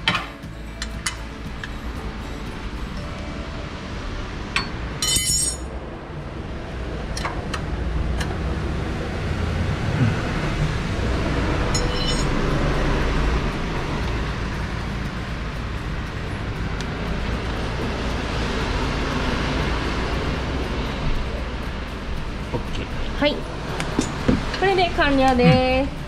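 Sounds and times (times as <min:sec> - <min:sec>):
metal tools clinking: 0:04.6 - 0:05.7, 0:11.7 - 0:12.3.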